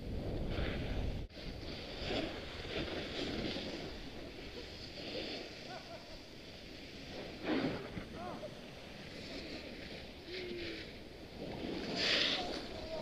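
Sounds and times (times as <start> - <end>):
wind rushing over microphone: 0.0 - 6.0
skis scraping over packed snow: 0.1 - 13.0.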